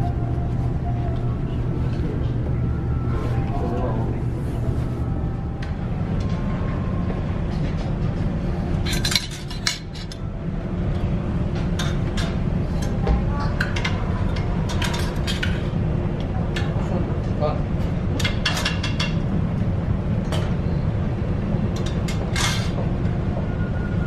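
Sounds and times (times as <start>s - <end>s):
low hum: 0.0s - 24.0s
dishes and cutlery clinking: 8.8s - 10.2s, 11.6s - 15.7s, 18.2s - 19.2s, 21.8s - 22.8s.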